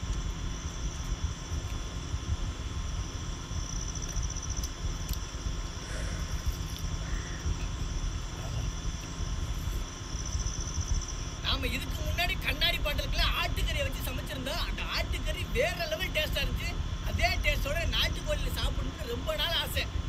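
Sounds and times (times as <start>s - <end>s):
insects trilling: 0.0s - 20.0s
faint chirps: 3.3s - 12.2s.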